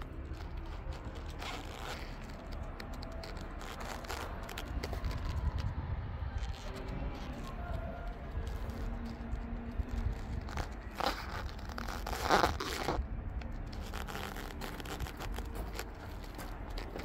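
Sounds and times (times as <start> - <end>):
low rumble: 0.0 - 17.0
footsteps crunching on gravel: 6.6 - 17.0.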